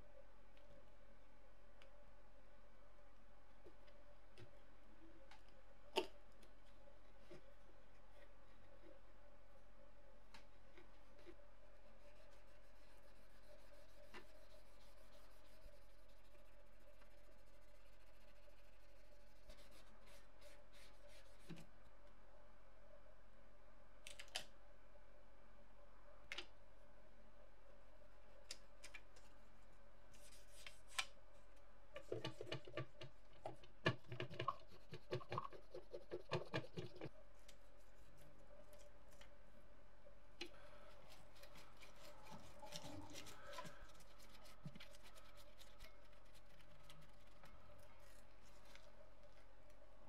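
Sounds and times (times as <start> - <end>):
cotton swab scratching circuit board: 11.1 - 21.5, 40.9 - 49.0.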